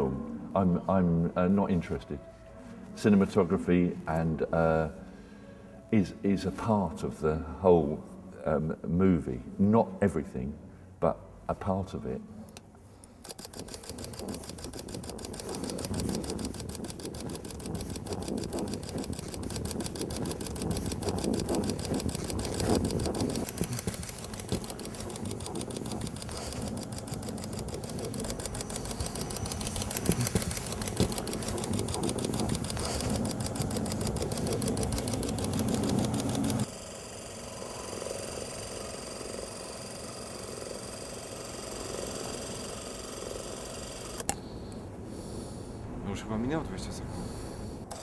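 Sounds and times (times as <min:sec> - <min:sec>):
film projector clattering: 0:13.2 - 0:36.8, 0:38.1 - 0:44.4
low hum: 0:13.3 - 0:36.7.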